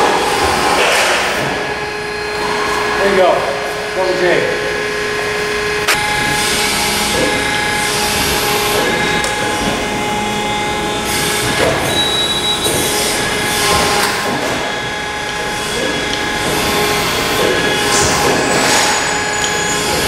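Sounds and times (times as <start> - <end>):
hydraulic pump humming: 0.0 - 20.0.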